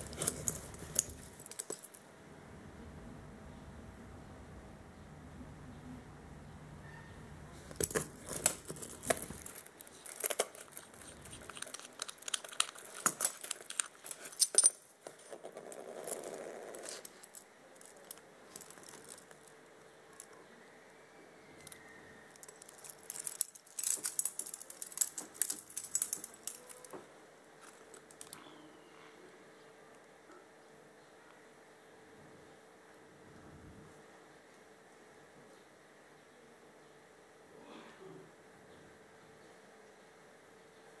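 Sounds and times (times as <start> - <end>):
watch bracelet clinking: 0.0 - 2.0, 7.8 - 19.5, 22.4 - 26.9.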